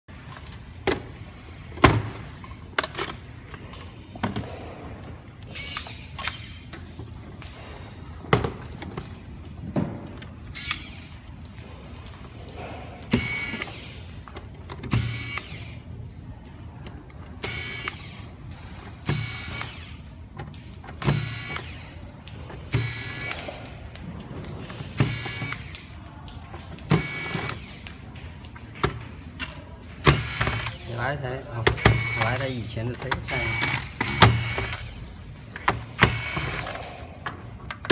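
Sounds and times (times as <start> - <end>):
electric screwdriver running: 19.1 - 20.0, 25.0 - 25.9, 26.9 - 27.9, 30.1 - 30.9, 31.8 - 35.1, 36.0 - 36.8.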